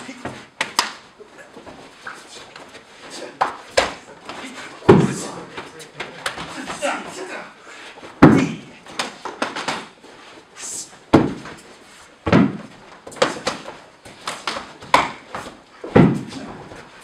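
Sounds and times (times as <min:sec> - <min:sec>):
bodies thudding onto floor mats: 0:12.2 - 0:16.9.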